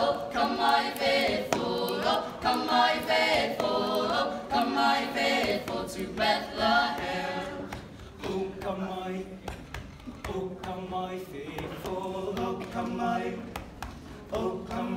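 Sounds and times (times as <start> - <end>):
group singing a cappella: 0.0 - 14.9.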